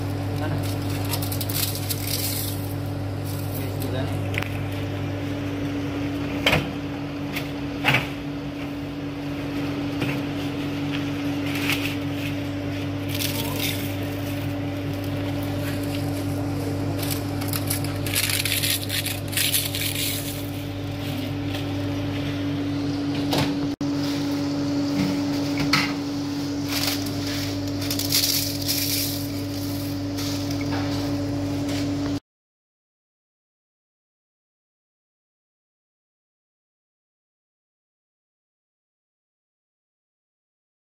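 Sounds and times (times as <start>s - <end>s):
steady machine hum: 0.0s - 32.2s
dry leaves crackling: 0.1s - 3.9s, 13.0s - 21.9s, 26.5s - 30.6s.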